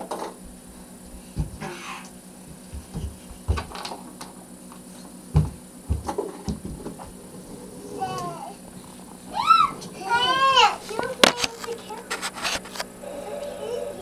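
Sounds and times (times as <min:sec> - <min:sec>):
feet stomping on a rug: 0:01.3 - 0:01.7, 0:02.4 - 0:03.7, 0:05.3 - 0:07.2
child's high-pitched vocal: 0:08.0 - 0:08.6, 0:09.3 - 0:12.1, 0:13.0 - 0:14.0.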